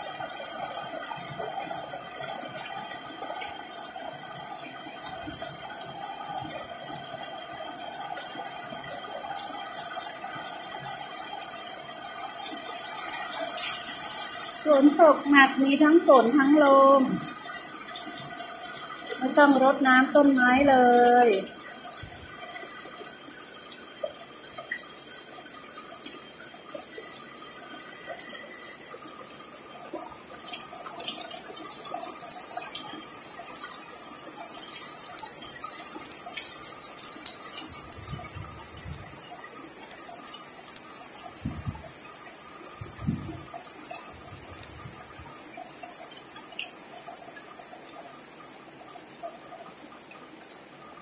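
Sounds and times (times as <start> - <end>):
heavy rain pouring: 0.0 - 23.5
water splashing and dripping: 0.0 - 51.0.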